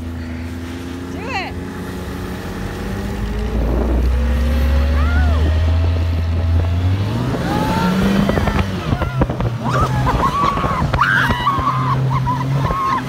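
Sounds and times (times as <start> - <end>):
snowmobile engine running: 0.0 - 13.0.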